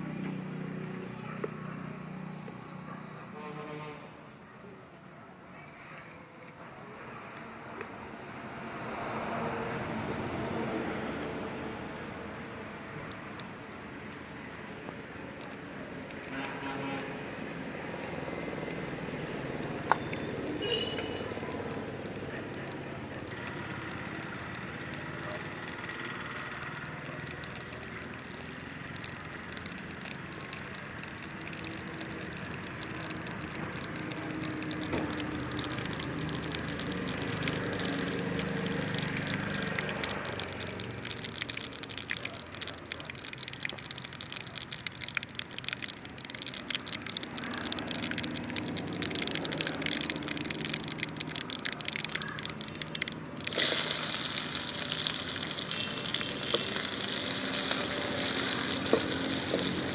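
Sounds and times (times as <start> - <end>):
fire crackling: 12.8 - 59.9.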